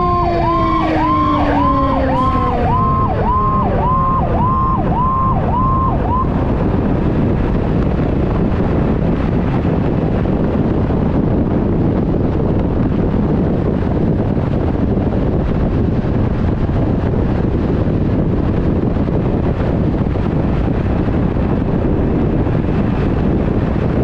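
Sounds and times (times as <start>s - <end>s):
fire engine siren: 0.0s - 6.8s
low falling tone: 0.0s - 7.5s
wind and road noise: 0.0s - 24.0s.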